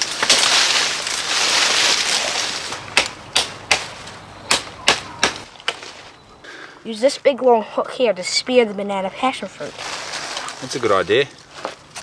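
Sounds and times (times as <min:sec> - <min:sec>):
sticks snapping: 0:00.0 - 0:05.9
leaves and branches rustling: 0:00.0 - 0:12.0.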